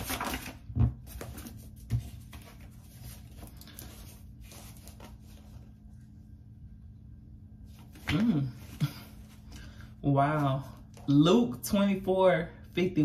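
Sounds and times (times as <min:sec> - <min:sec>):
cards rustling and tapping: 0:00.0 - 0:05.6.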